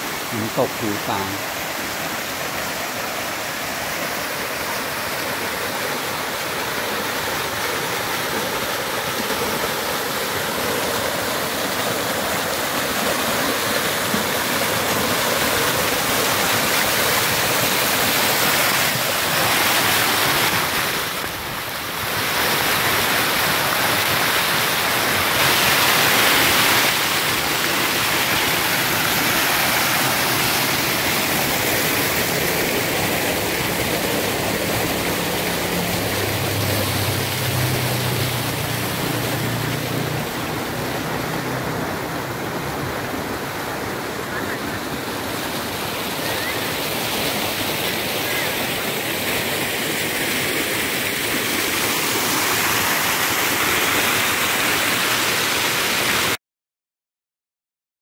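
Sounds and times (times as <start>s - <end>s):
waterfall splashing over rocks: 0.0s - 56.4s.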